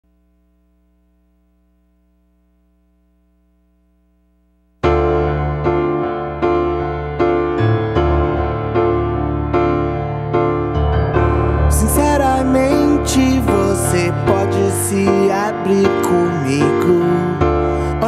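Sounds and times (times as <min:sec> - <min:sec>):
faint low hum: 0:00.0 - 0:04.8
piano playing rock chords: 0:04.8 - 0:18.0.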